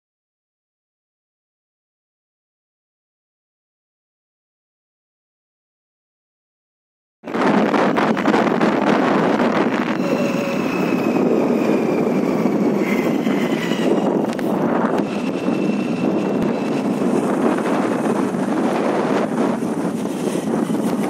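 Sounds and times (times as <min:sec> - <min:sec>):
wind buffeting microphone: 0:07.3 - 0:21.0.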